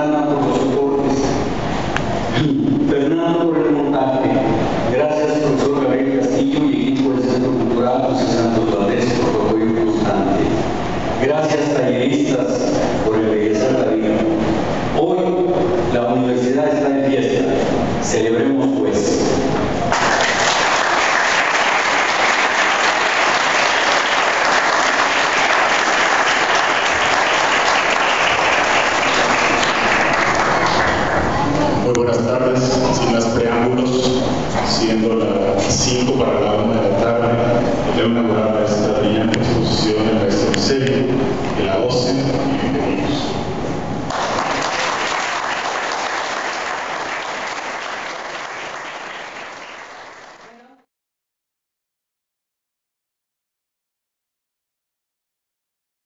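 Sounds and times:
audience applauding: 19.9 - 31.5, 44.1 - 50.6.

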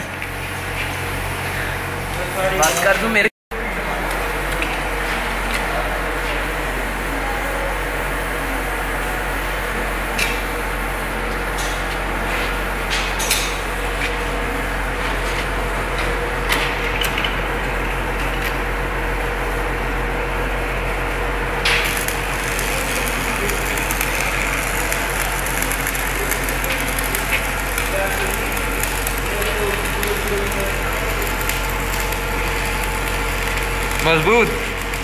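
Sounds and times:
steady low hum: 0.0 - 35.0
welding arc crackling: 7.6 - 35.0.

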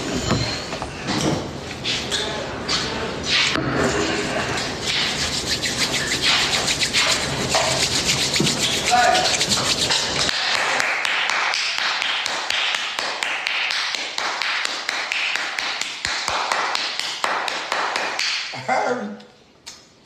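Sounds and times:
hands brushing and slapping: 4.8 - 10.4.

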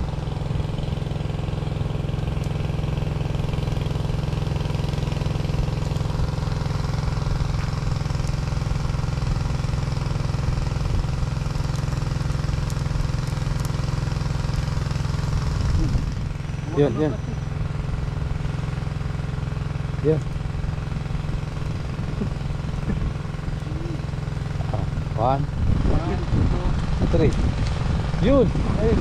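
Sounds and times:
small engine running: 0.0 - 29.0.

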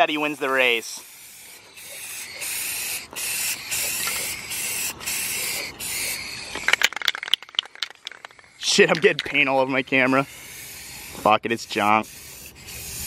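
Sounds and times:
spray paint can hissing: 0.0 - 7.8, 9.2 - 13.0
rattling clicks: 6.5 - 9.5.

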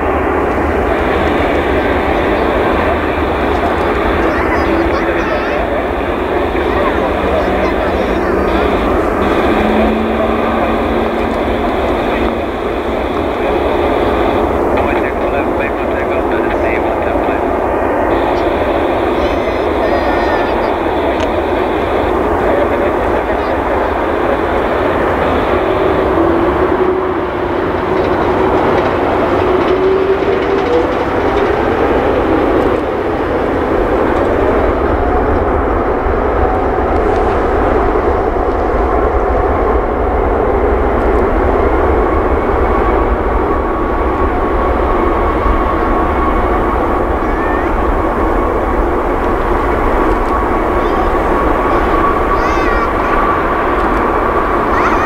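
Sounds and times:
jet engines idling: 0.0 - 55.0.

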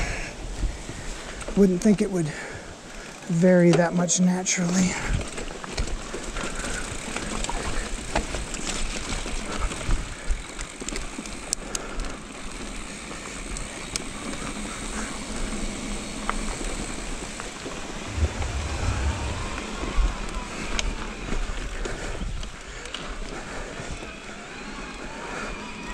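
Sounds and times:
bike tyres rushing on dirt: 4.8 - 24.0
bike clicks and rattles: 4.9 - 17.4.

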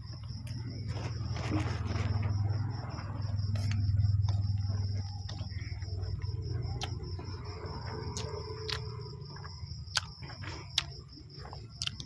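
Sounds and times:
low hum: 0.0 - 11.7
wet chewing: 0.1 - 12.0
mouth clicks and smacks: 6.7 - 7.3, 9.5 - 12.0.

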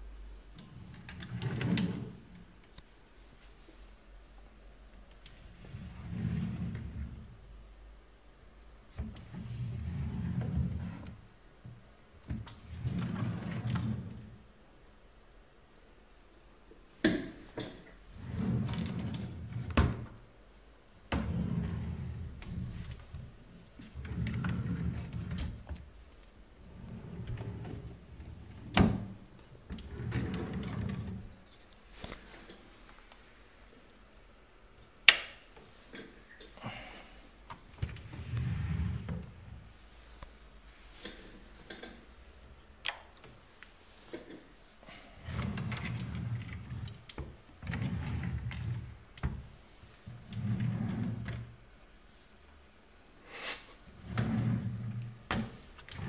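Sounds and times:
drawers sliding open and shut: 0.6 - 2.4, 5.5 - 7.3, 9.0 - 11.2, 12.2 - 14.3, 17.0 - 20.2, 21.1 - 26.0, 26.6 - 31.4, 37.6 - 39.7, 40.9 - 42.1, 43.9 - 51.6, 53.9 - 56.0.

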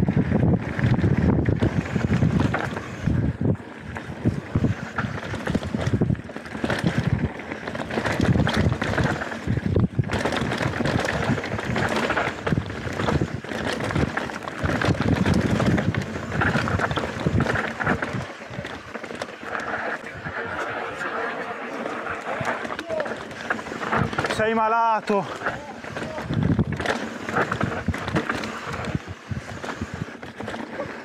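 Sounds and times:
wind on microphone: 0.0 - 18.9, 25.8 - 30.6
bike frame and chain rattling: 0.0 - 31.0
bike tyres rolling on dirt: 0.0 - 31.0.

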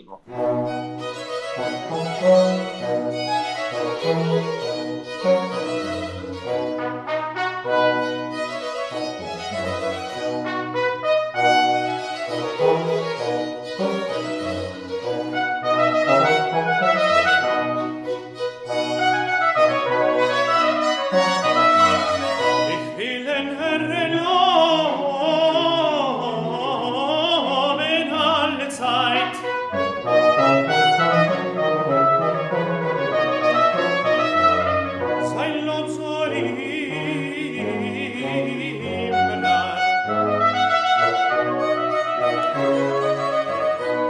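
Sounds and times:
baroque ensemble playing: 0.0 - 44.0
tenor singing with vibrato: 20.5 - 29.9, 35.0 - 41.2.

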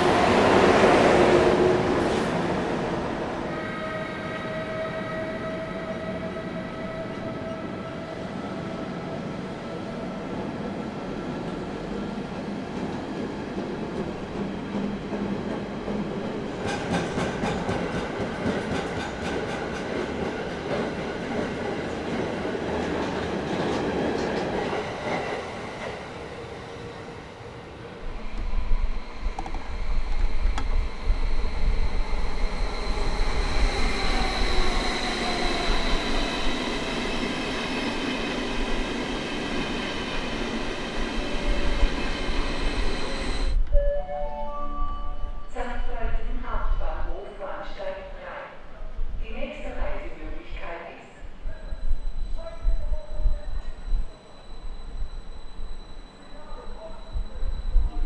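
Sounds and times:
train wheels clicking over rails: 13.6 - 26.0.

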